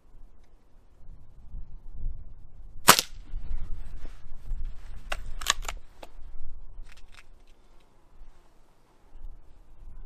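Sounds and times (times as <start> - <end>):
air rifle metallic clicks: 5.1 - 6.2.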